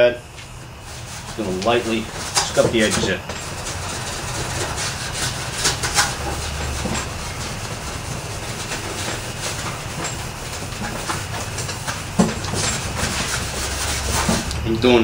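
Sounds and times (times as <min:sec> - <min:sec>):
scouring pad rubbing metal: 0:00.7 - 0:15.0.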